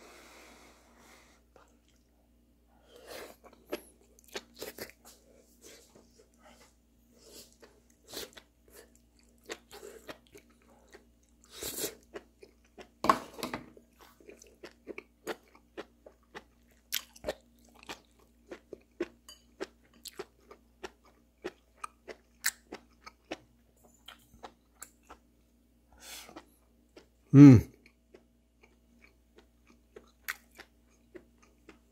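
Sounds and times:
person chewing crunchily: 2.9 - 6.2, 7.1 - 13.0, 13.8 - 23.5, 24.1 - 25.3, 27.7 - 31.9.

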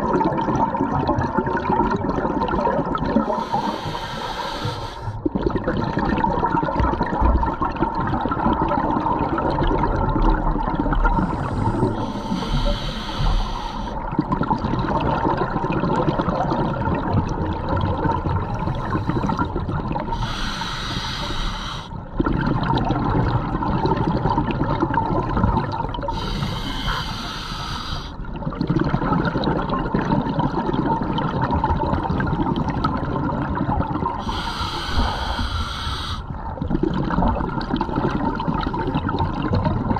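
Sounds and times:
bubbling exhales underwater: 0.0 - 3.8, 5.2 - 13.2, 13.9 - 20.6, 22.0 - 26.9, 28.3 - 35.6, 36.3 - 39.9
diver inhaling through regulator: 3.2 - 5.2, 11.1 - 14.0, 20.1 - 22.0, 26.1 - 28.2, 34.2 - 36.3.

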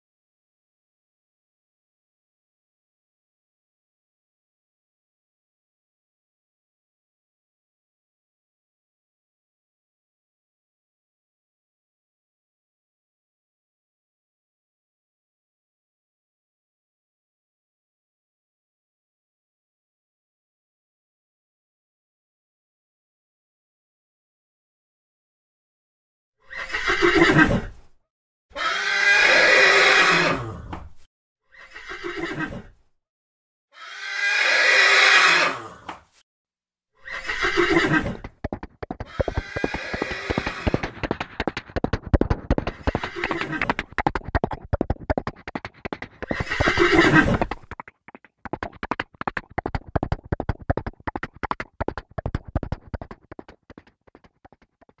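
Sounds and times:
horse whinnying: 26.4 - 27.8, 28.6 - 30.7, 31.5 - 32.8, 33.8 - 35.9, 37.0 - 47.8
galloping hoofbeats: 37.2 - 55.0.

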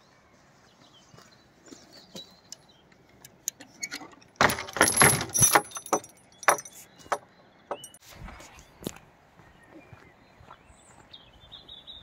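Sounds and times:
metal gate chain clinking: 3.5 - 8.0.

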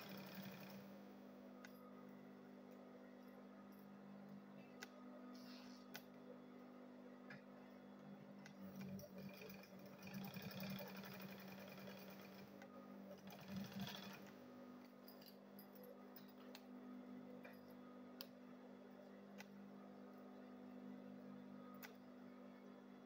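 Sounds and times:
sewing machine stitching: 0.0 - 0.9, 8.6 - 14.4.

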